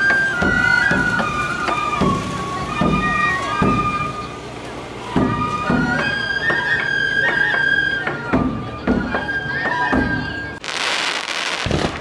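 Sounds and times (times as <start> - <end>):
bamboo flutes playing in unison: 0.0 - 11.6
drum beats: 0.0 - 12.0.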